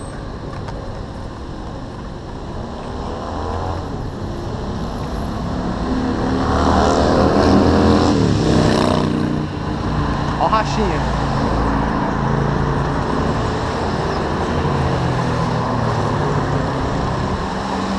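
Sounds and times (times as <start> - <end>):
car passing by: 4.6 - 9.4.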